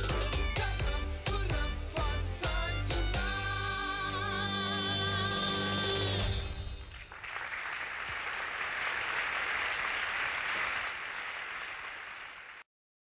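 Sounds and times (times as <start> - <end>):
audience applauding: 6.1 - 12.7.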